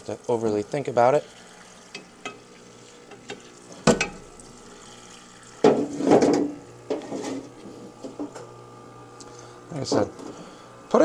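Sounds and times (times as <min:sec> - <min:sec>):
liquid splashing and pouring in tank: 0:00.6 - 0:08.2.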